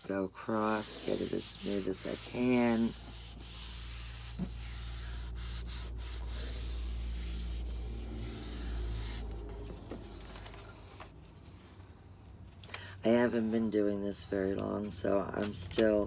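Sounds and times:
hands rubbing paper on board: 0.5s - 11.0s.

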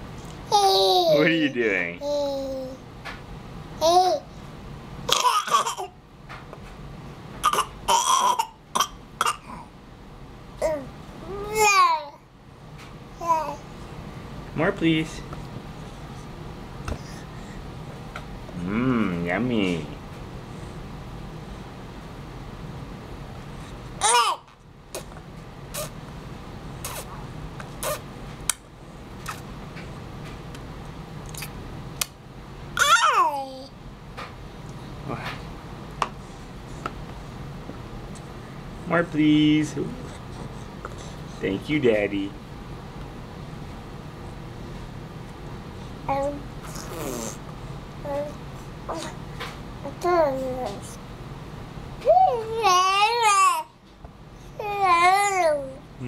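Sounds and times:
baby vocal sound: 10.6s - 12.2s, 46.1s - 47.4s
baby lip-smacking and sucking: 24.9s - 26.0s, 26.8s - 28.0s, 31.3s - 32.1s
baby sucking and lip-smacking: 25.0s - 25.9s, 26.8s - 27.1s, 27.7s - 28.0s.

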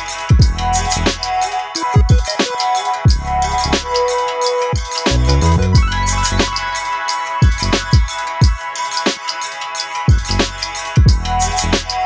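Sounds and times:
electronic music: 0.0s - 12.0s
fast hi-hat ticks: 0.0s - 12.0s
kick drum: 0.3s - 0.6s, 2.0s - 2.3s, 5.7s - 5.9s, 7.4s - 8.6s, 10.1s - 10.4s, 11.0s - 11.3s
bass line: 0.4s - 1.4s, 5.1s - 6.8s.

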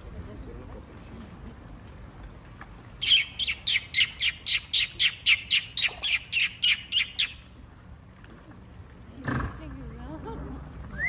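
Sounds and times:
bird calling sharp high notes: 3.0s - 7.5s.

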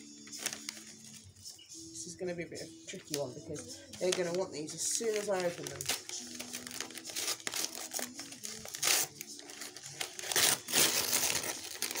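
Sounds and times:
packaging crinkling and rustling: 0.2s - 1.2s, 3.9s - 12.0s.

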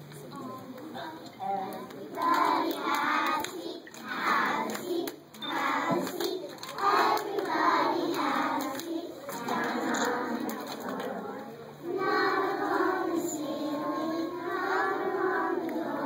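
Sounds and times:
hand claps: 1.9s - 11.2s
children singing: 2.2s - 16.0s.

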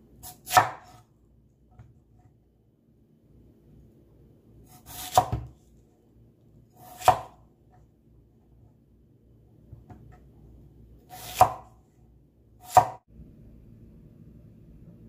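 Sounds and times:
knife slicing onion: 0.2s - 1.1s, 4.6s - 5.7s, 6.7s - 7.4s, 11.0s - 11.8s, 12.6s - 13.0s.

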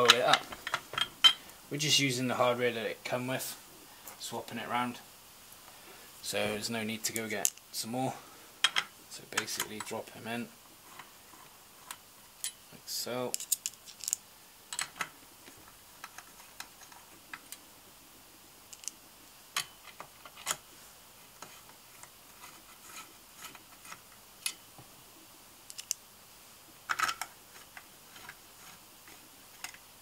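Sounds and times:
small metal clicks and taps: 18.7s - 19.0s, 25.7s - 26.0s.

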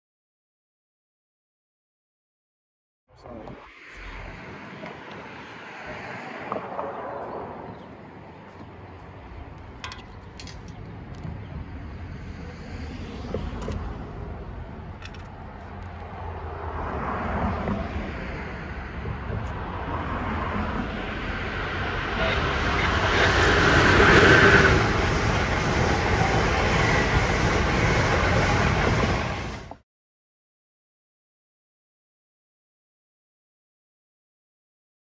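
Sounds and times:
train approaching rumble: 3.2s - 29.8s.

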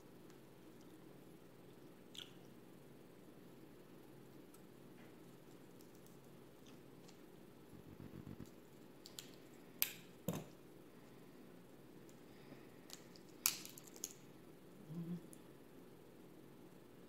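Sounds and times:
crab shells cracking: 9.0s - 10.1s, 12.9s - 14.2s.

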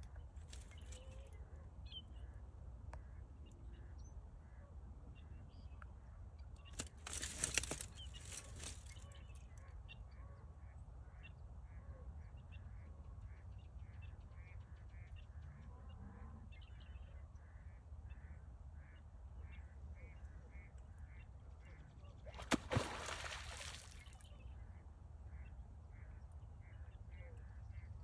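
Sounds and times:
beaver tail slapping water: 22.3s - 24.2s
water splashing: 22.3s - 24.2s.

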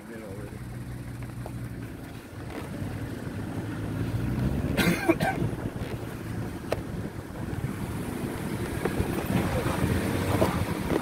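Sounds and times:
vehicle engine and tyre rumble: 0.0s - 11.0s
wind buffeting microphone: 5.2s - 11.0s.

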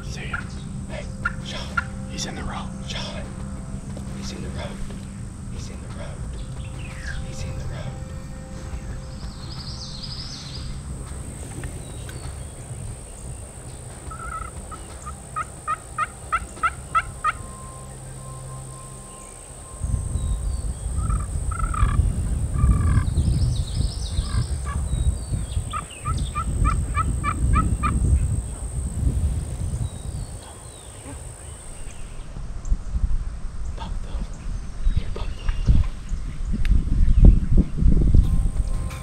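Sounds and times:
turkeys yelping: 0.0s - 3.2s, 10.1s - 17.7s, 20.9s - 23.2s, 24.1s - 28.8s, 30.0s - 32.0s
turkey gobbling: 0.0s - 3.3s, 13.8s - 17.6s, 21.0s - 23.1s, 25.7s - 28.8s
low rumble: 0.0s - 39.0s.

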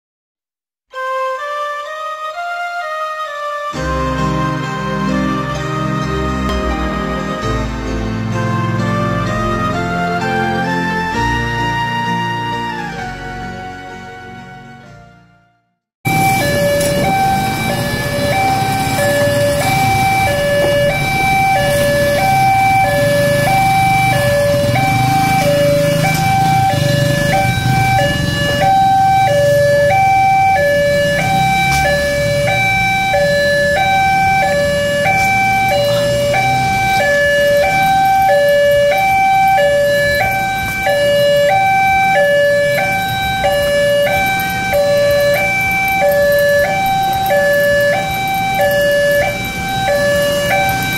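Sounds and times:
road traffic engines humming: 3.8s - 14.9s, 16.1s - 50.9s
two-tone crossing warning alarm: 16.1s - 50.9s.

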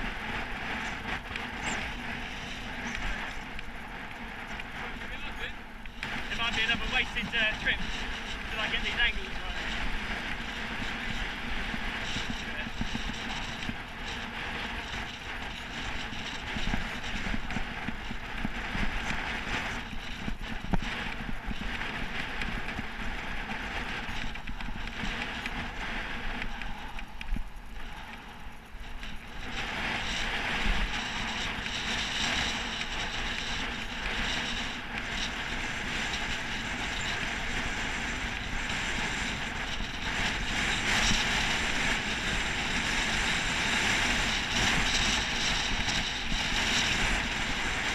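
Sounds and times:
tyre and road noise: 0.0s - 47.9s
wind rushing over microphone: 0.0s - 47.9s.

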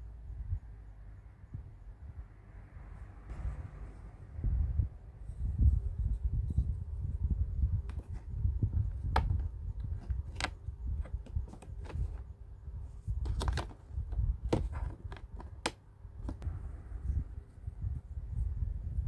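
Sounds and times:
plastic clicks and taps: 9.0s - 12.2s, 14.5s - 16.4s.

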